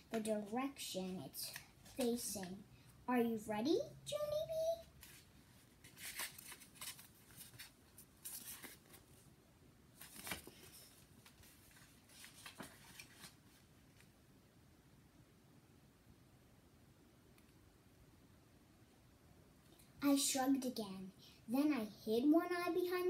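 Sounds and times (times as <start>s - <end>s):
paper pages rustling: 1.4s - 2.4s, 4.9s - 9.3s, 10.0s - 14.1s.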